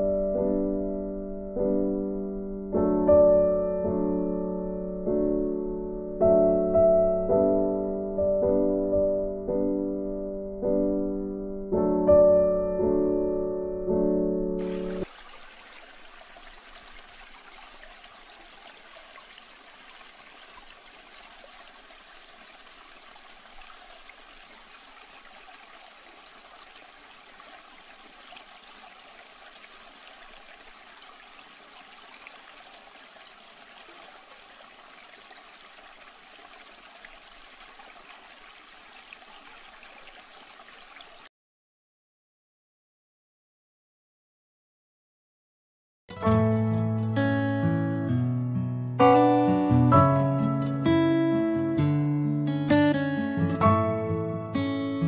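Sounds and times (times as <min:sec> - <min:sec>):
aquarium water trickling: 0:14.6 - 0:41.3.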